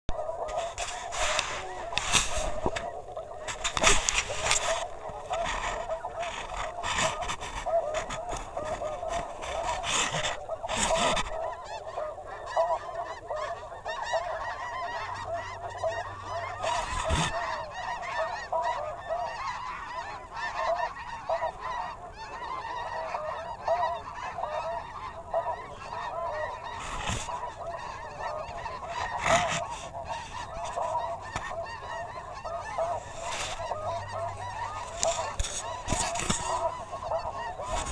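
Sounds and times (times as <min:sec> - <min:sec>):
geese honking: 0:00.1 - 0:37.9.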